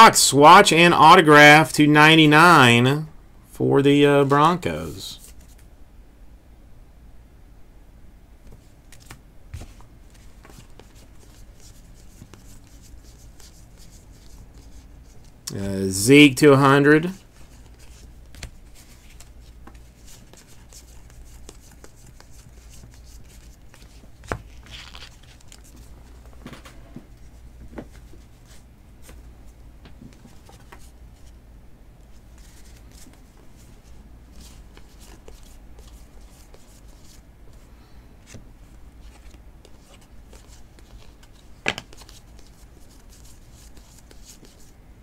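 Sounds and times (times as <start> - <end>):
low steady hum: 0.0 - 45.0
cards sliding and tapping: 8.4 - 15.4, 17.3 - 26.7, 34.4 - 37.6, 39.0 - 44.7.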